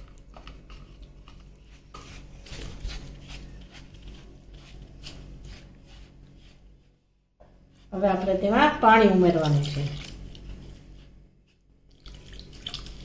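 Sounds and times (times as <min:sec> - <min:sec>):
spatula scraping and squishing yogurt: 0:00.0 - 0:07.0.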